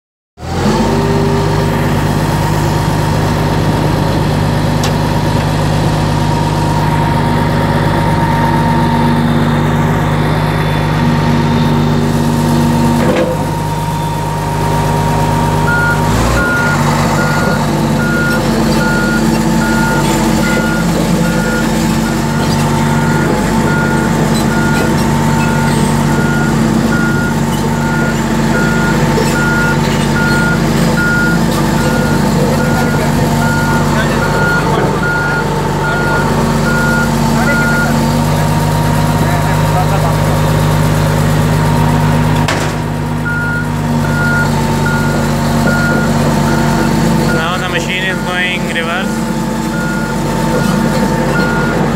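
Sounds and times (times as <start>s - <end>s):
bulldozer diesel engine running: 0.4s - 51.9s
backup alarm beeping: 15.1s - 38.0s, 43.2s - 51.9s.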